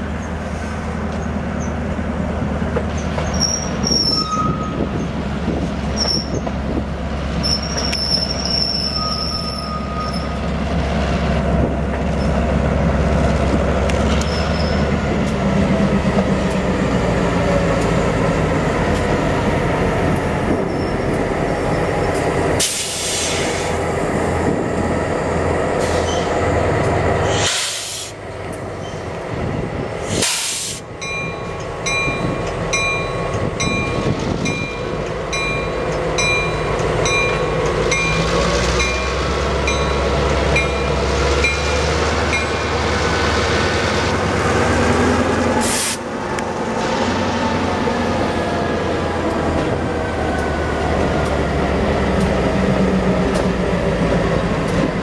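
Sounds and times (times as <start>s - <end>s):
diesel locomotives running: 0.0s - 55.0s
train wheels squealing on rails: 0.1s - 1.9s, 2.8s - 10.6s, 12.0s - 12.5s, 13.8s - 15.2s, 16.8s - 23.9s, 25.6s - 29.2s.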